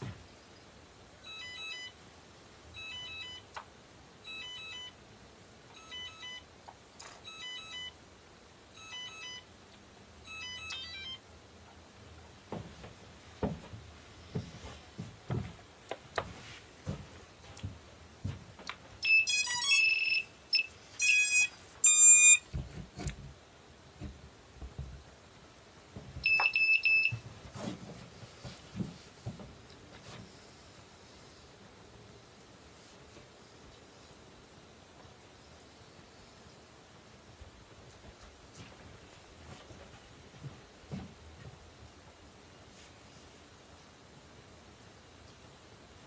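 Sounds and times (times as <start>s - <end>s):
electronic beeping: 10.3s - 11.2s, 19.0s - 22.4s, 26.2s - 27.2s
knocks and handling noise: 12.5s - 19.0s, 25.9s - 30.3s.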